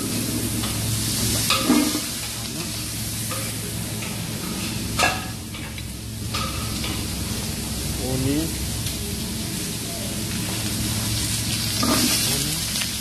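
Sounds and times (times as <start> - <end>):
fat sizzling in a frying pan: 0.0 - 13.0.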